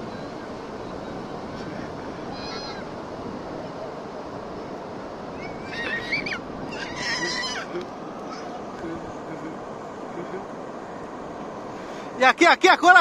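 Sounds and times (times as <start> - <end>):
waves breaking on beach: 0.0 - 13.0
small child squealing: 2.3 - 2.9, 5.4 - 7.7, 8.3 - 8.6.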